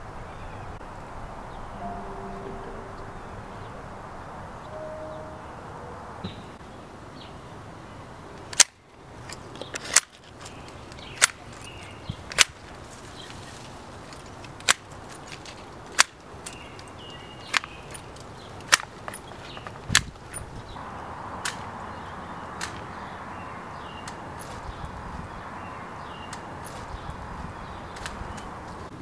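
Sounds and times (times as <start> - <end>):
hedge shears snipping branches: 8.4 - 20.5, 21.4 - 21.7, 22.5 - 22.9, 27.9 - 28.6.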